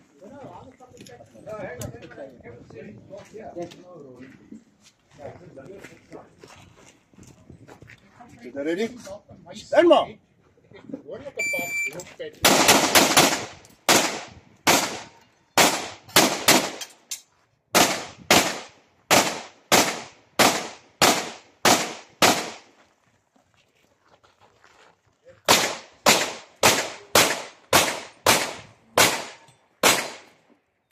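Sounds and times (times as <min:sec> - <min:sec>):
pistol shots: 0:12.4 - 0:16.8, 0:17.8 - 0:22.7, 0:25.5 - 0:30.3.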